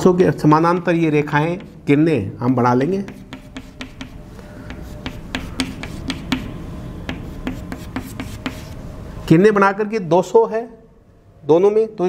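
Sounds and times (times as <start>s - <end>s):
chalk tapping and scraping on chalkboard: 0.4s - 8.8s.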